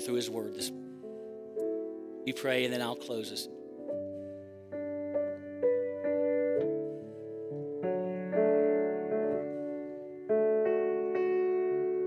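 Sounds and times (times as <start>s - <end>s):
piano playing slow chords: 0.0s - 12.0s.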